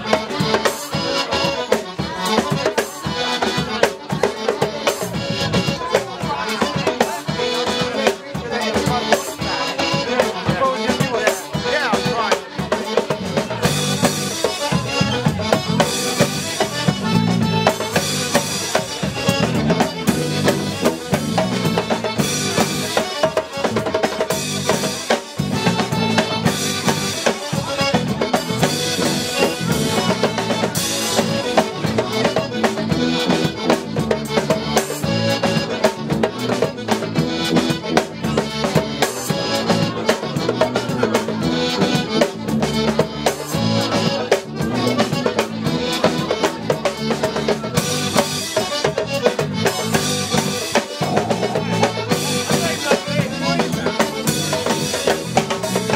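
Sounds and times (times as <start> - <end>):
drum kit beat: 0.0 - 55.9
electric bass: 0.0 - 55.9
tuba: 13.0 - 55.9.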